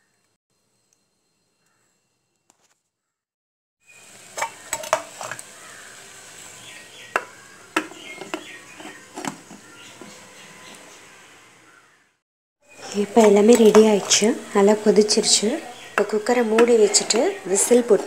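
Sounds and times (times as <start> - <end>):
soup bubbling: 3.9 - 9.8
metal spoon scraping pot: 7.8 - 10.4, 12.7 - 18.0.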